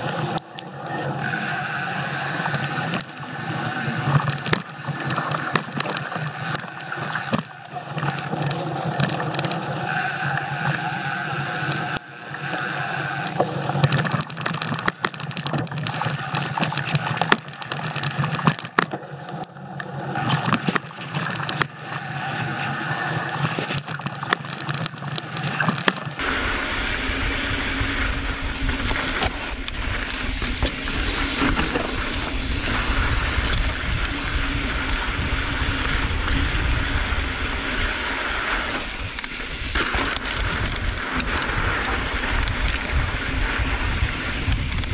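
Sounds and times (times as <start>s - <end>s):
bike rattling over bumps: 0.0s - 19.0s, 20.1s - 44.9s
bike tyre noise on dirt: 0.0s - 44.9s
wind buffeting microphone: 26.2s - 44.9s.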